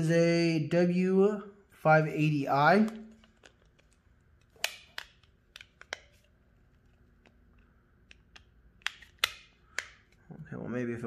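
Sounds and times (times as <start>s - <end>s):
plastic battery cover clicking: 2.8s - 6.3s, 8.0s - 10.2s.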